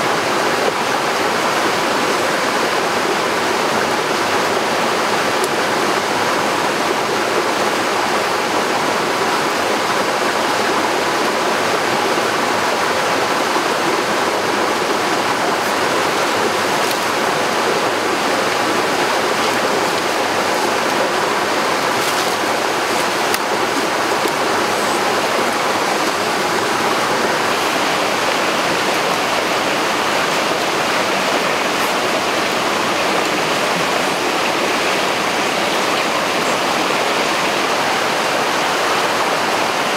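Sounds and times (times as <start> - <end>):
waterfall rushing over rocks: 0.0 - 39.9.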